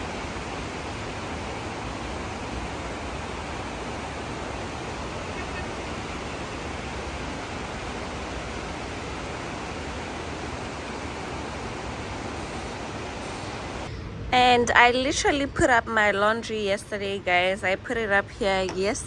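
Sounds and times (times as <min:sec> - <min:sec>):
heavy rain pouring: 0:00.0 - 0:13.9.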